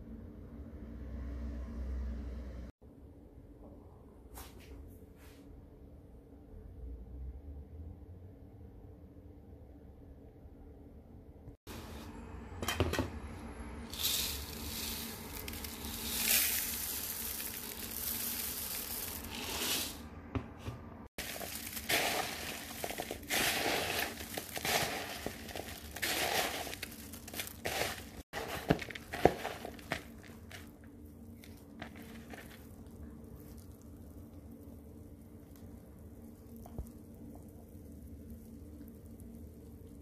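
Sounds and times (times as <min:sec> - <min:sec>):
puffed rice rustling and crunching: 0:13.9 - 0:20.0, 0:21.1 - 0:40.0.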